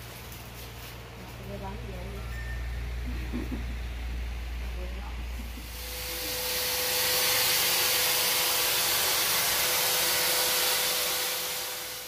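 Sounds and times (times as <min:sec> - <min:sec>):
faint constant hum: 0:00.0 - 0:06.6
steady rushing hiss: 0:04.8 - 0:12.0.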